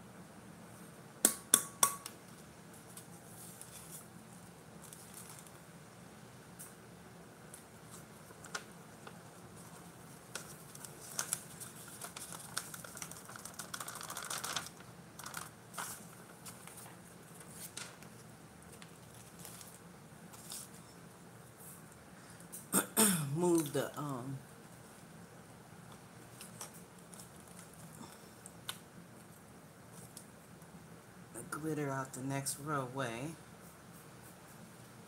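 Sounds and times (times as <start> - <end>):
paper rustling: 2.7 - 5.6, 7.5 - 20.9.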